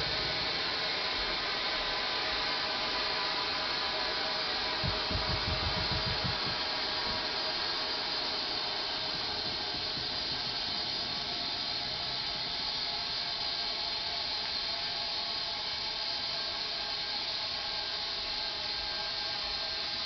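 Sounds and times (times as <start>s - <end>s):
low knocks: 4.8s - 7.2s
compressed air hissing: 4.8s - 13.9s.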